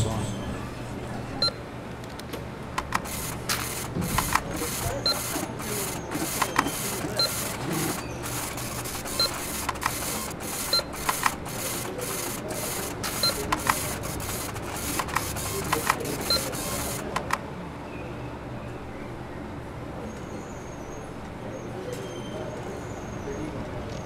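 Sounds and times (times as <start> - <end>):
sharp clicks: 2.0 - 17.4
receipt printer chattering: 2.7 - 17.4
barcode scanner beep: 2.8 - 17.3.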